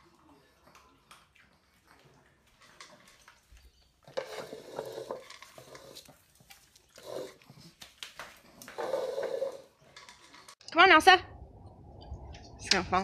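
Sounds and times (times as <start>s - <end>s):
dog eating kibble: 0.0s - 10.6s
food bowl knocking and scraping: 4.0s - 6.1s.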